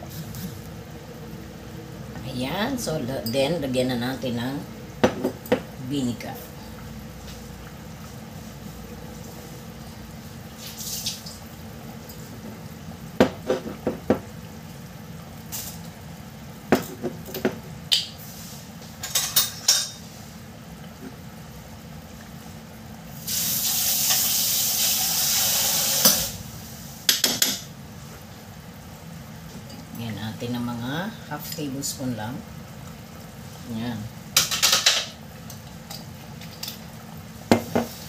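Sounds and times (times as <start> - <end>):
oil bubbling in a pot: 0.0 - 38.0
loud steady hiss: 23.0 - 27.8
clinks against a pot: 27.1 - 27.7, 34.4 - 36.8.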